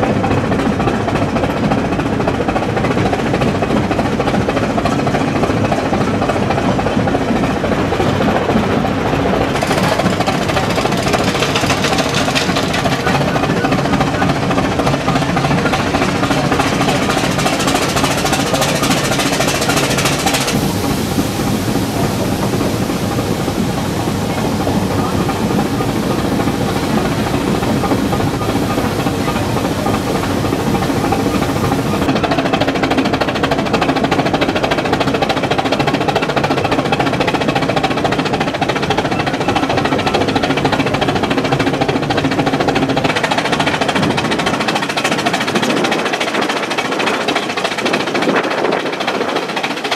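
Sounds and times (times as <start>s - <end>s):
steam locomotive running noise: 0.0s - 49.9s
mechanical whine: 9.5s - 32.3s
high hiss: 16.1s - 32.1s.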